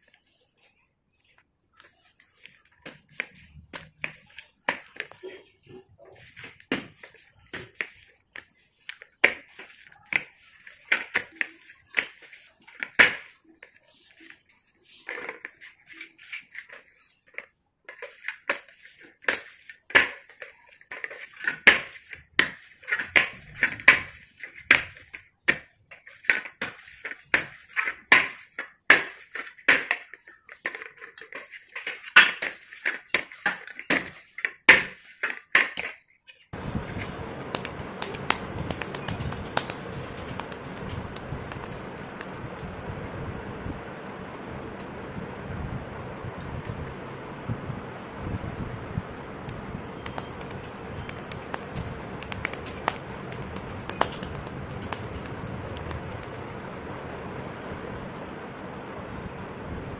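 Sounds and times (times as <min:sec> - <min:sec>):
dough patting on metal plate: 0:37.0 - 0:42.4, 0:49.9 - 0:56.4.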